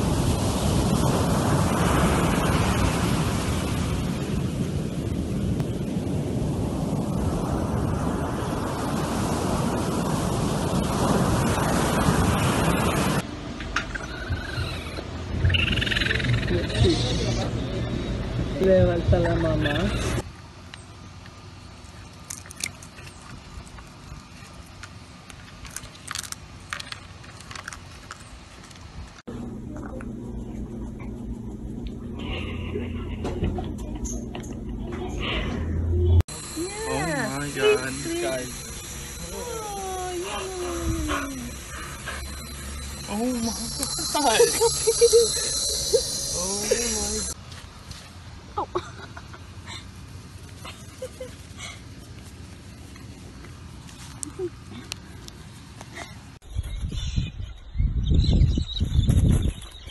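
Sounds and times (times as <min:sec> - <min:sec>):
ocean surf breaking on beach: 0:00.0 - 0:13.2, 0:36.3 - 0:47.4
animal chewing crunchy food: 0:22.0 - 0:28.9.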